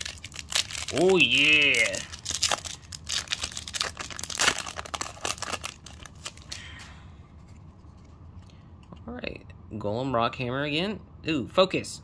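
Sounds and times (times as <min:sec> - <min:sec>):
wrapper torn open and crinkled: 0:00.0 - 0:06.9.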